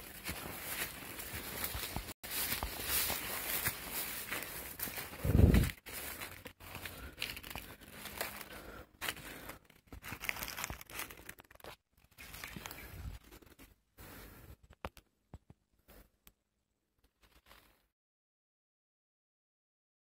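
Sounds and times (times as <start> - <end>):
dry leaves rustling and crackling: 0.0 - 13.1
footsteps through tall grass: 0.0 - 14.3.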